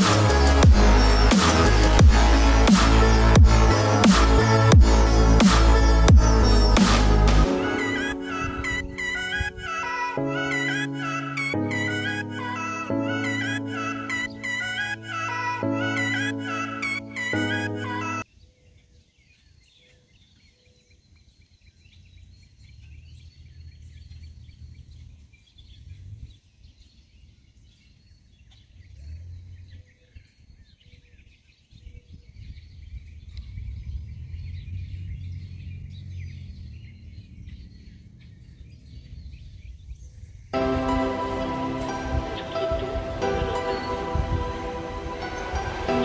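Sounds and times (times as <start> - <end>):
bird chirps: 0.0 - 46.0
wind rumble on microphone: 28.8 - 40.6.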